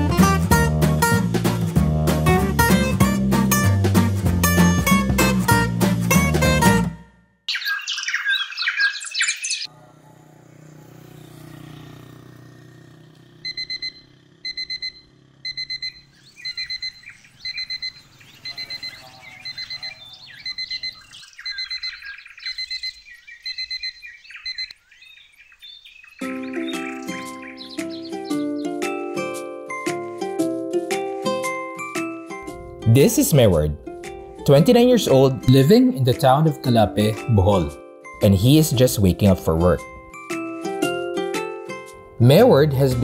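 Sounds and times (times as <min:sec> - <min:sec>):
loud high chirping: 0:07.5 - 0:09.7, 0:15.0 - 0:28.8
birds chirping: 0:07.5 - 0:30.0, 0:31.3 - 0:41.1
phone alarm beeping: 0:13.4 - 0:24.8.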